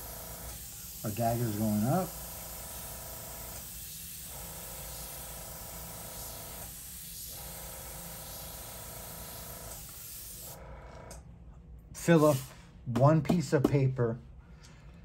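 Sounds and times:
airbrush spraying hiss: 0.0 - 10.6, 12.1 - 12.7.

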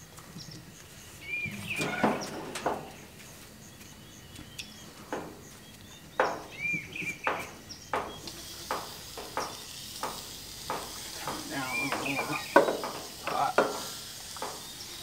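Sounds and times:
skewers clanking on metal grates: 1.3 - 3.2, 6.2 - 15.0
grill lid metal clunks: 1.5 - 3.1, 6.2 - 14.8
meat sizzling on grill: 6.0 - 15.0.

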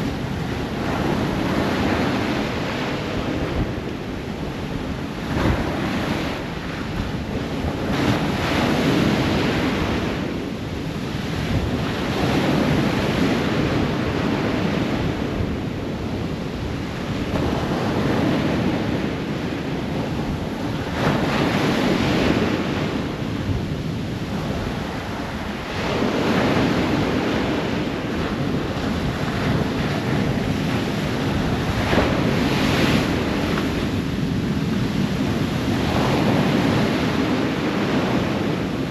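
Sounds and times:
ocean surf breaking: 0.0 - 38.9.

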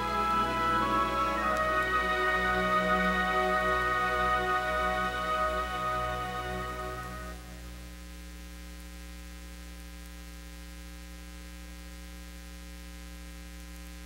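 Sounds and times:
closing music: 0.0 - 7.8
faint tape hiss: 0.0 - 14.0.

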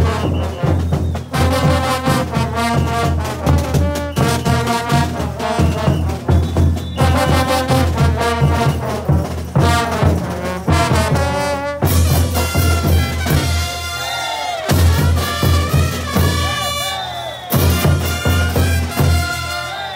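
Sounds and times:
brass band playing: 0.0 - 19.9
pounding bass drums: 17.5 - 19.4.

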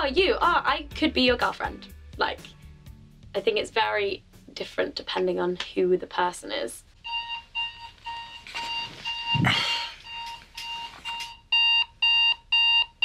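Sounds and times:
electronic alarm beeping: 7.0 - 13.0.

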